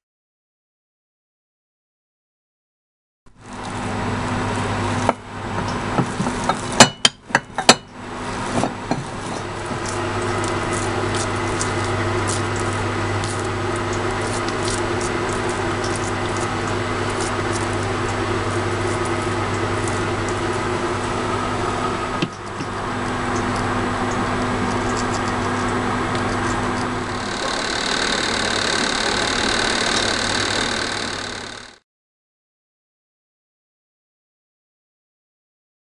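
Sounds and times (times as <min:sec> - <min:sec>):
kitchen appliance hum: 0:03.3 - 0:31.8
hands patting dough: 0:08.3 - 0:21.2
hiss with high whine: 0:27.2 - 0:31.6.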